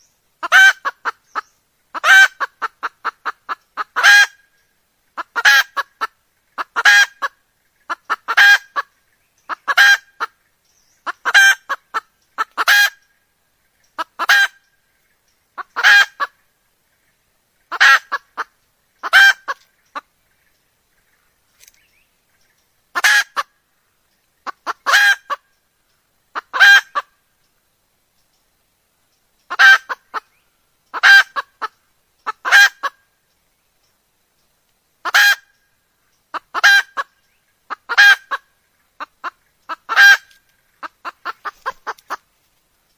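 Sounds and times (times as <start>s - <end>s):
hen cackling calls: 0.4s - 8.9s, 9.5s - 10.4s, 11.0s - 13.2s, 13.9s - 14.7s, 15.5s - 16.5s, 17.6s - 20.1s, 22.9s - 23.6s, 24.4s - 25.5s, 26.3s - 27.2s, 29.5s - 33.1s, 35.0s - 35.6s, 36.3s - 42.3s.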